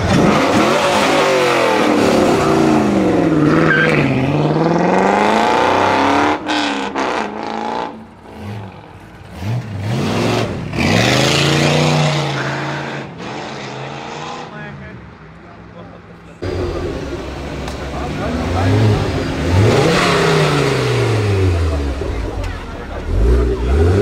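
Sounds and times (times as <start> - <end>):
car engine revving and pulling away: 0.0 - 14.7, 16.4 - 24.0
car engine throttle blips: 16.4 - 24.0.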